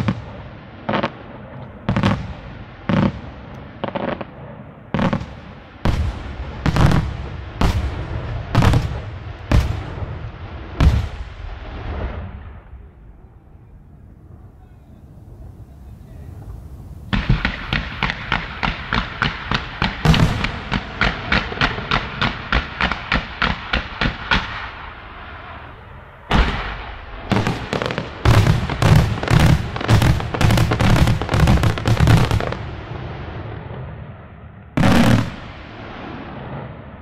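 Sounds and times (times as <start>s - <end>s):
rapid firework shots: 17.1s - 24.8s, 26.3s - 32.7s, 34.8s - 36.2s.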